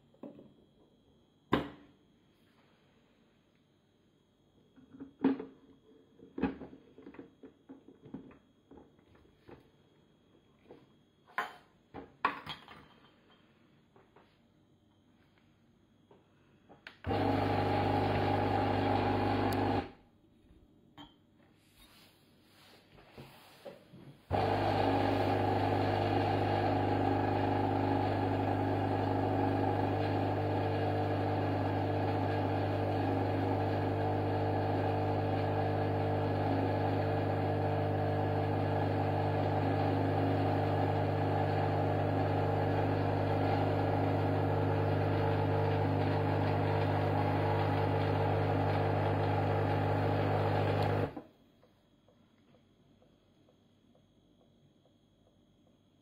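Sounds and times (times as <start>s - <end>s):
espresso machine pump humming: 17.1s - 19.9s, 24.3s - 51.2s.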